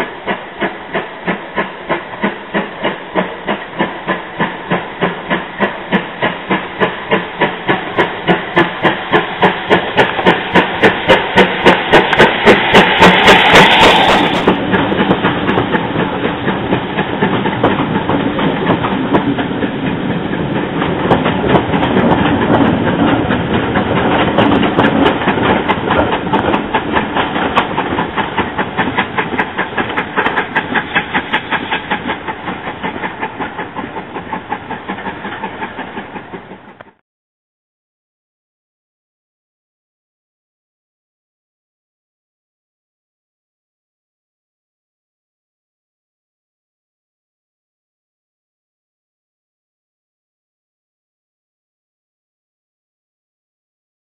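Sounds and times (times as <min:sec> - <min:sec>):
steam locomotive chuffing: 0:00.0 - 0:37.0
wheels clattering on rail joints: 0:00.0 - 0:37.0.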